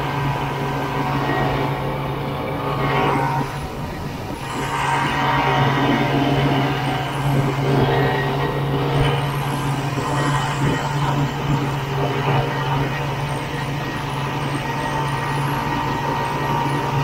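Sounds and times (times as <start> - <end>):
snowmobile engine running: 0.0 - 17.0.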